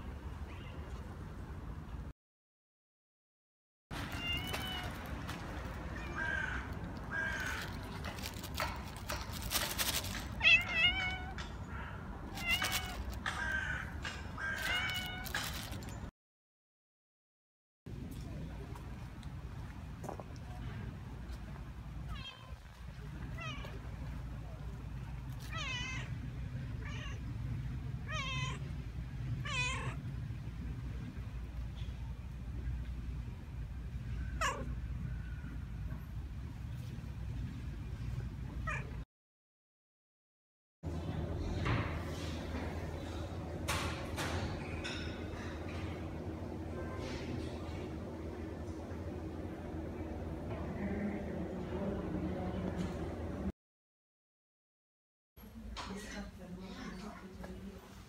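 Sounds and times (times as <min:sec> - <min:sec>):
cat meowing: 0:04.0 - 0:05.1, 0:10.4 - 0:13.8, 0:14.4 - 0:15.7, 0:22.1 - 0:22.6, 0:25.4 - 0:26.2, 0:26.8 - 0:27.2, 0:28.0 - 0:28.7, 0:29.4 - 0:30.0, 0:34.3 - 0:34.8, 0:38.6 - 0:39.0.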